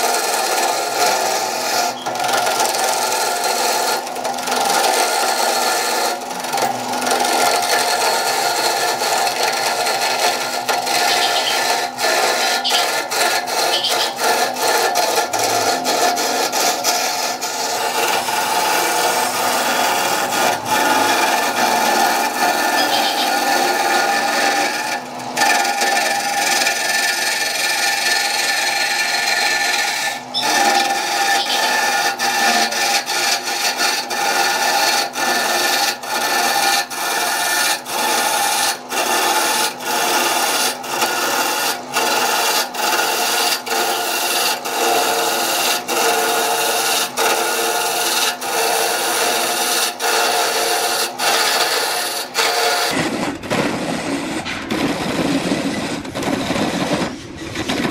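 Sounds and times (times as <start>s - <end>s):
turning tool scraping wood: 0.0s - 57.9s
wood lathe running: 0.0s - 57.9s.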